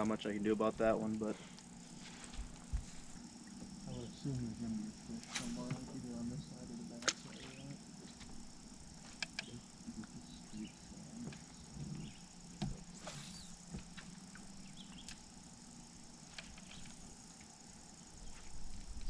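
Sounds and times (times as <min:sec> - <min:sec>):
faint drone of insects: 0:00.0 - 0:19.0
low hum: 0:00.0 - 0:19.0
fishing reel clicks and taps: 0:09.2 - 0:09.5.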